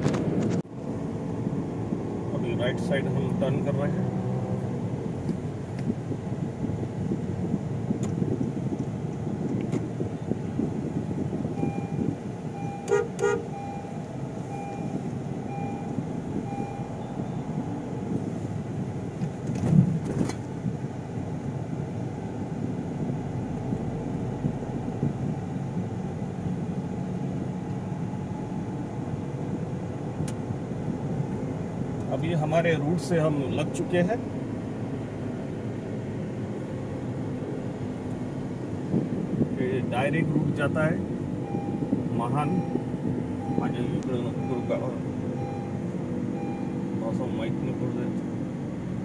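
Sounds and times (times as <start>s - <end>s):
car engine and road noise: 0.0s - 49.0s
short beeps: 11.6s - 17.5s, 41.4s - 46.8s
vehicle horn honks: 12.6s - 13.9s.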